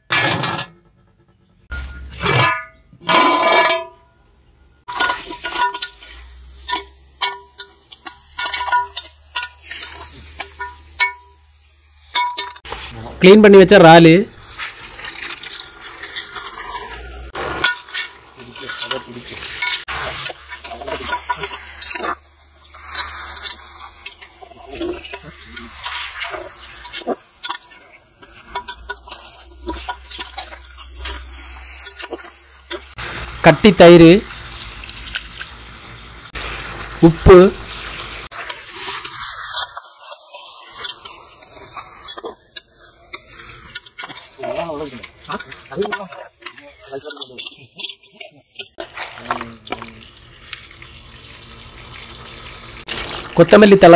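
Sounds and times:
masala sizzling in pot: 1.6 - 53.9
ladle scraping metal pot: 1.8 - 4.0, 14.5 - 33.0.

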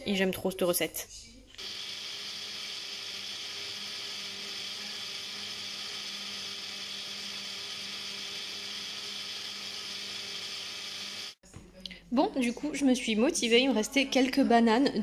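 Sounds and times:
electric food mixer whirring: 1.6 - 11.4.

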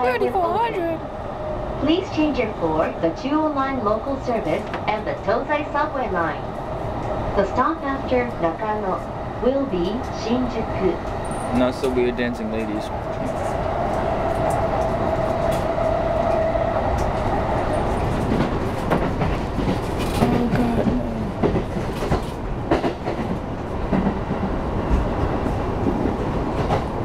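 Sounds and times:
train running rumble: 0.0 - 27.0
train whine: 0.0 - 27.0.

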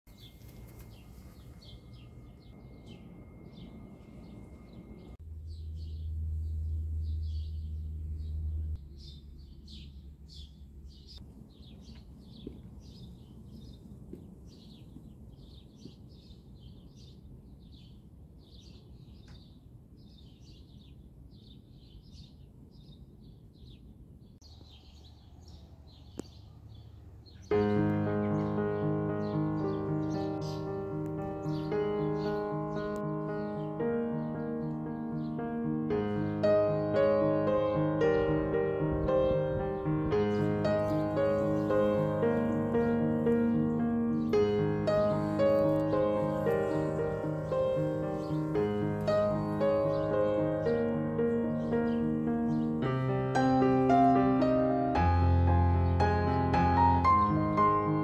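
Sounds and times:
piano music: 0.1 - 5.4, 27.5 - 58.0
small birds chirping: 0.1 - 58.0
low steady rumble: 2.2 - 11.2.

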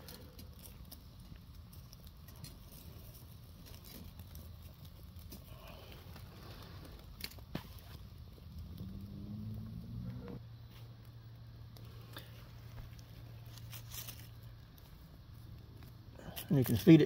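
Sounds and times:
wood fire crackling: 0.0 - 17.0
sharp fire pops: 3.7 - 11.1.

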